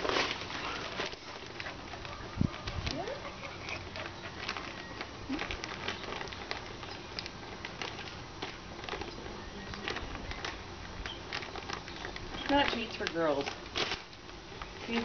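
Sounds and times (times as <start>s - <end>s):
dog whining: 0.6s - 5.8s.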